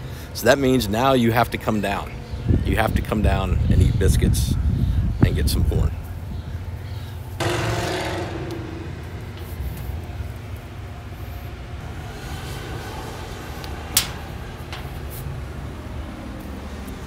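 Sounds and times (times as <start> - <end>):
rumble of passing vehicles: 1.8 - 17.0
engine note: 7.4 - 17.0.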